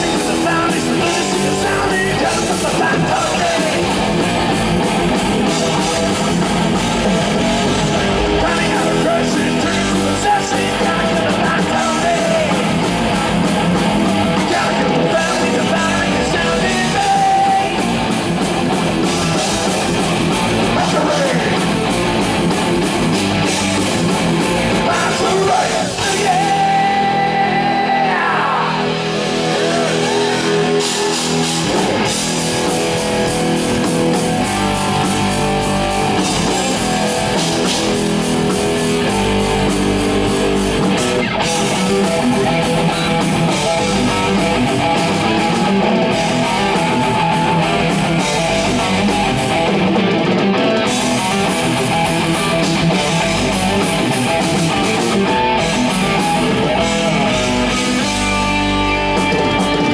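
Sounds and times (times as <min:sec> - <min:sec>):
person singing: 0:00.0 - 0:04.3, 0:08.0 - 0:13.4, 0:14.2 - 0:18.0, 0:20.6 - 0:21.8, 0:24.7 - 0:31.8
heavy metal band playing live: 0:00.0 - 0:59.9.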